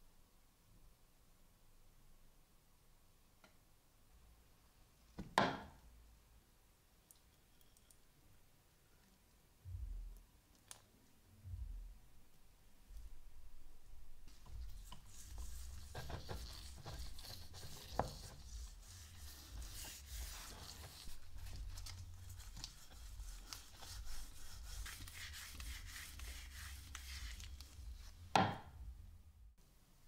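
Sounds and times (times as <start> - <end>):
rag rubbing wood: 14.3 - 28.5.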